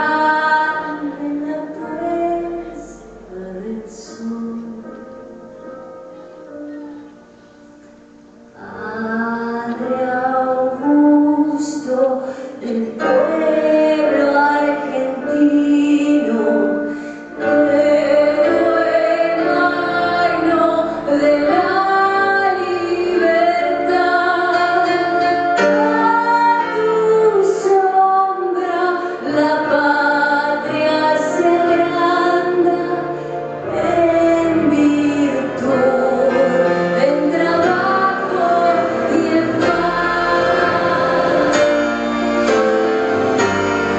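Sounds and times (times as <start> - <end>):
woman singing slow melody: 0.0 - 5.4, 8.6 - 41.8
live band accompaniment: 4.2 - 43.9.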